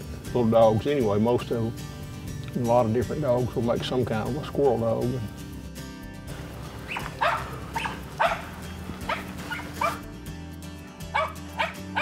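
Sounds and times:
background music: 0.0s - 12.0s
dog barking sharply: 6.9s - 8.5s, 9.1s - 10.0s, 11.1s - 12.0s.

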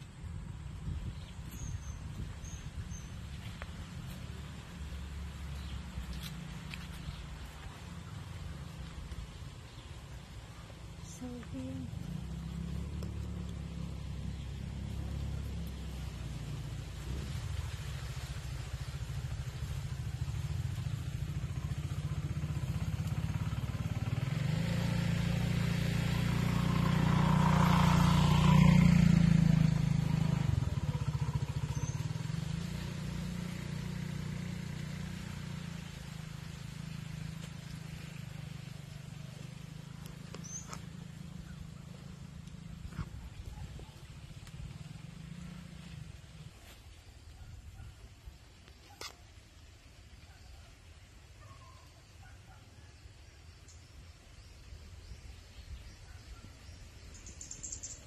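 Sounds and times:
small motorcycle engine running: 11.0s - 46.9s.

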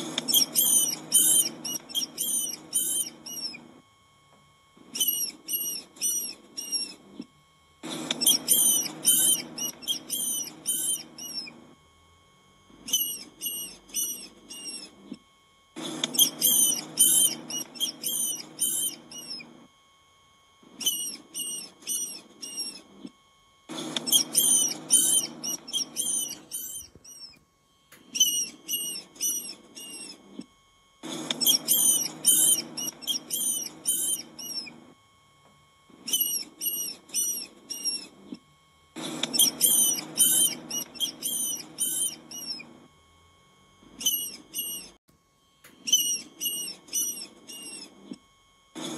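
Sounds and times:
rodents squeaking: 0.0s - 3.7s, 4.9s - 7.2s, 7.8s - 11.7s, 12.8s - 15.2s, 15.8s - 19.6s, 20.8s - 23.1s, 23.7s - 27.4s, 28.0s - 30.4s, 31.0s - 34.8s, 36.0s - 38.4s, 39.0s - 42.7s, 43.9s - 45.0s, 45.8s - 48.2s.

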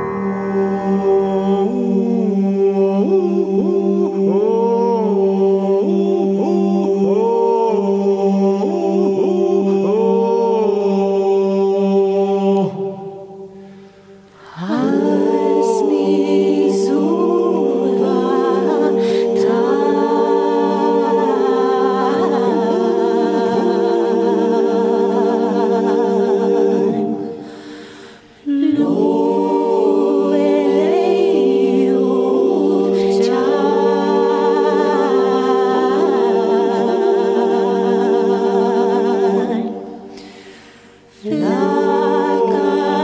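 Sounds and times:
low drone notes: 0.0s - 3.4s
singing voices: 0.0s - 43.0s.

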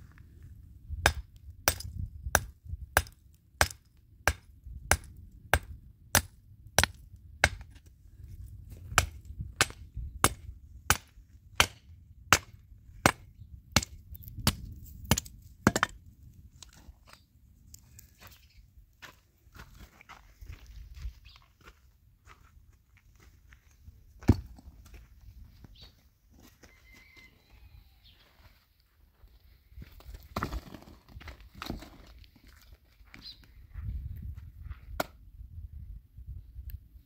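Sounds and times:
hammer striking rock: 1.0s - 7.7s, 8.9s - 16.0s.

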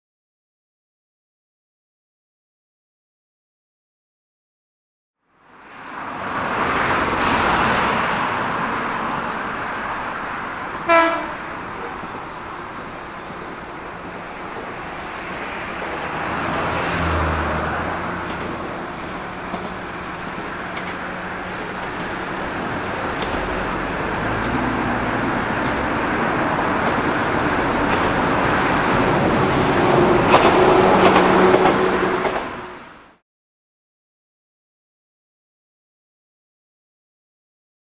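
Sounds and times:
train horn blast: 10.8s - 11.5s, 29.9s - 32.9s
train wheels and motors running: 11.7s - 32.7s.

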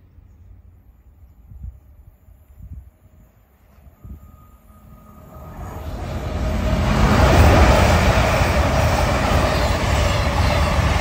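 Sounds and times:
diesel train passing: 0.0s - 11.0s
wheels on rail: 2.6s - 11.0s.

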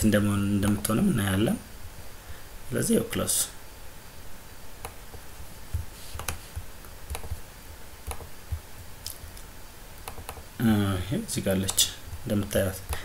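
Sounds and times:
faint low hum: 0.0s - 13.0s
computer mouse clicking: 0.6s - 0.9s, 4.8s - 7.4s, 8.0s - 10.4s.

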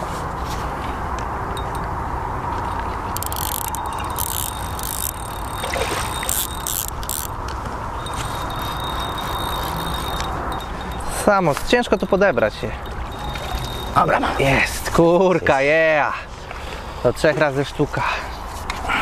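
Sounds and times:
fishing reel clicking: 1.6s - 1.9s, 3.0s - 14.9s.

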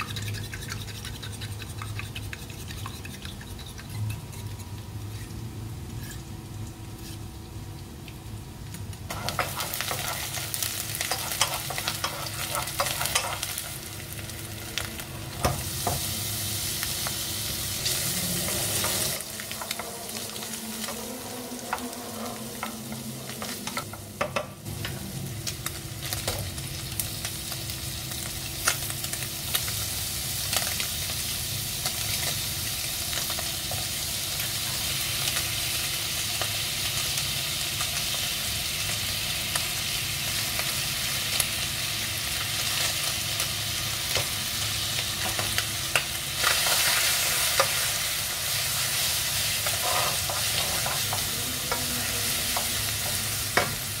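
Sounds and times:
food sizzling in a frying pan: 0.0s - 54.0s
wooden spatula scraping a pan: 6.0s - 6.3s, 49.6s - 52.7s.

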